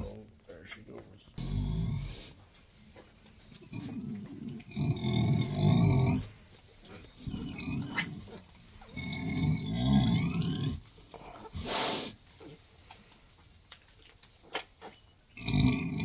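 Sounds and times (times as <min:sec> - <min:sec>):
sow grunting deeply: 0:01.4 - 0:02.4.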